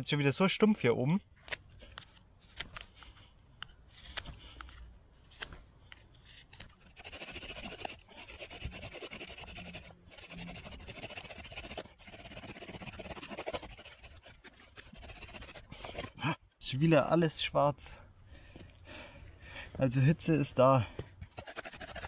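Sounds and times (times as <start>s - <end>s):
knife scraping wood: 6.3s - 16.2s, 21.4s - 22.0s
wooden spindle grinding: 6.9s - 16.2s, 21.4s - 22.0s.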